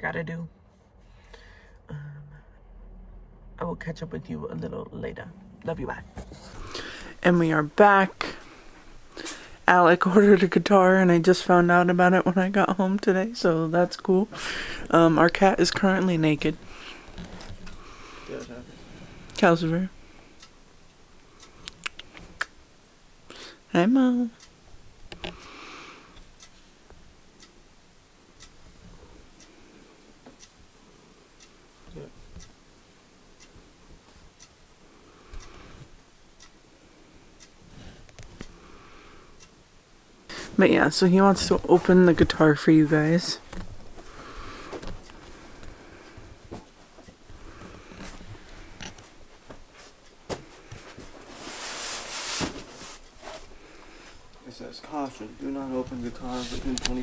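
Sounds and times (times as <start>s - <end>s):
clock ticking: 6.6s - 51.2s, 53.0s - 57.0s
cardboard scraping rustle: 50.8s - 53.5s.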